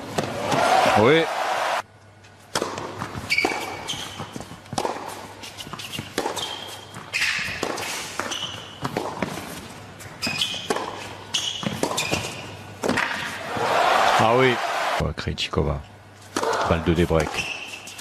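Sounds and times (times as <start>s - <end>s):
racket striking tennis ball: 2.5s - 9.6s, 10.2s - 13.4s
tennis ball bouncing: 2.5s - 13.4s
shoes squeaking on court: 3.0s - 13.3s, 17.2s - 18.0s.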